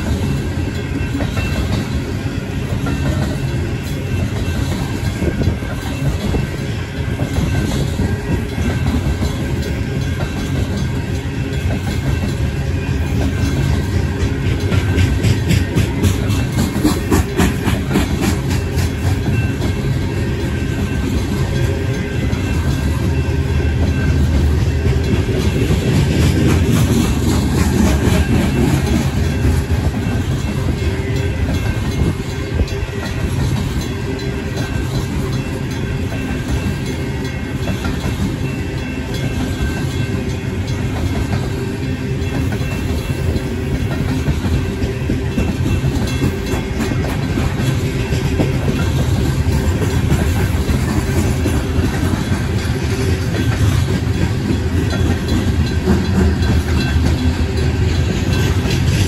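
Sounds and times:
crossing bells ringing: 0.0 - 59.0
train wheels rumbling on rails: 0.0 - 59.0.

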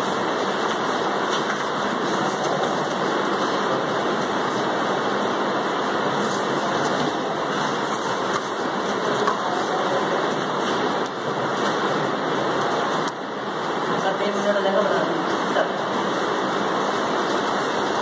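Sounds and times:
steady rushing noise: 0.0 - 18.0.

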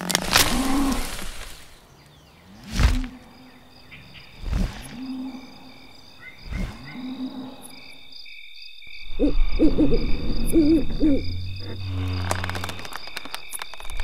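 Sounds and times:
high-pitched insect chirring: 8.1 - 14.0
low rising tone: 9.2 - 13.2.

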